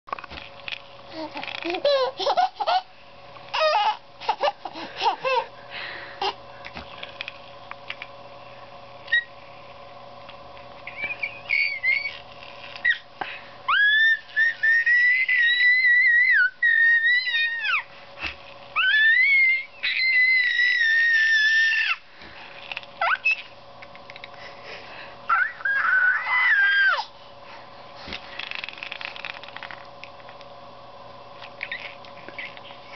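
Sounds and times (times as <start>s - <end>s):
baby squealing: 3.6s - 5.4s, 10.9s - 12.2s, 13.7s - 17.8s, 18.8s - 22.0s, 23.0s - 23.5s, 25.3s - 27.1s.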